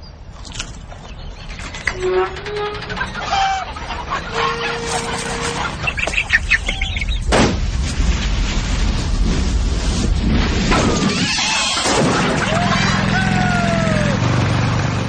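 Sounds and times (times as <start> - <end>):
chickens squawking and clucking: 1.0 - 7.3, 10.8 - 14.2
low rumble: 3.0 - 11.2
sharp thump: 7.3 - 7.7.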